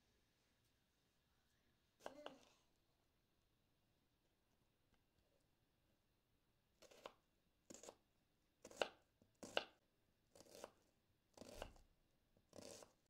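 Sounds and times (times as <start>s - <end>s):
knife slicing onion on board: 6.8s - 11.9s, 12.5s - 13.0s.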